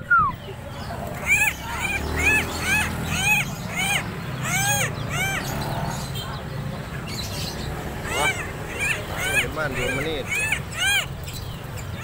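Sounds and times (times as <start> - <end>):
bird calling rising and falling notes: 0.0 - 6.1.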